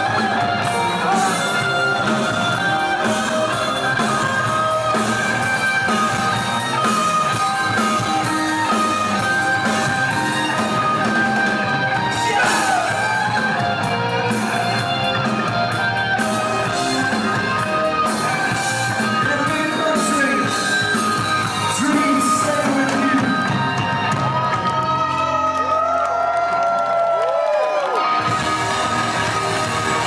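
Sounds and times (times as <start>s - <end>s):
rock band playing live: 0.0s - 27.0s, 27.7s - 30.0s.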